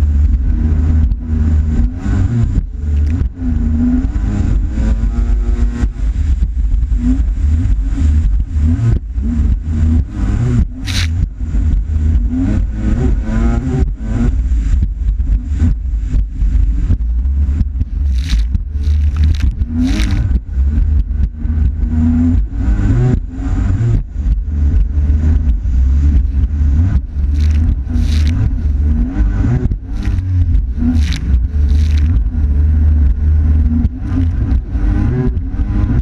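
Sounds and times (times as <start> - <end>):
jet ski engine droning: 0.0 - 36.0
wind on microphone: 0.0 - 36.0
water splashing: 10.7 - 12.0, 14.2 - 21.6, 24.1 - 32.8.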